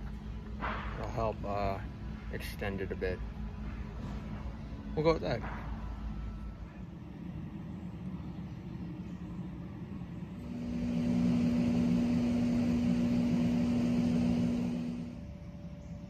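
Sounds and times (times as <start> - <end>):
low background hum: 0.0 - 16.0
machine drone: 9.6 - 16.0.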